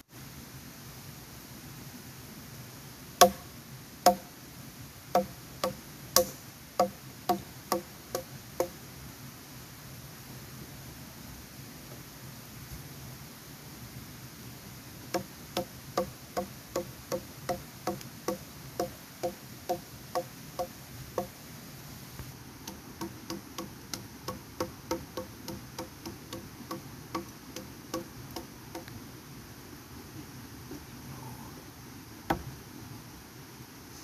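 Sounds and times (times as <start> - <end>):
woody knocks: 3.2 - 3.4, 4.1 - 4.3, 5.2 - 8.8, 15.1 - 21.3, 22.7 - 28.9, 32.3 - 32.5.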